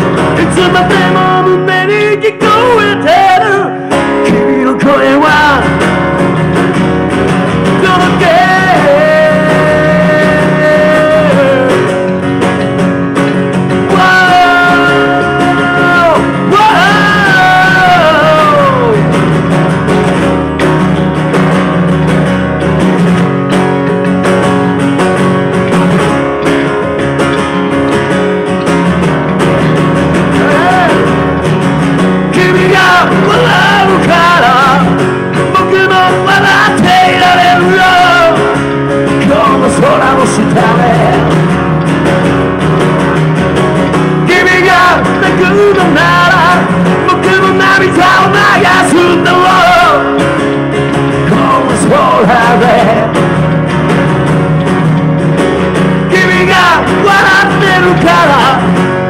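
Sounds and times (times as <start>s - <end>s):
person singing: 0.0s - 12.7s, 13.5s - 19.4s, 29.5s - 31.5s, 32.1s - 41.8s, 43.8s - 53.5s, 55.8s - 59.0s
acoustic guitar strumming: 0.0s - 59.0s
electric bass: 0.0s - 59.0s.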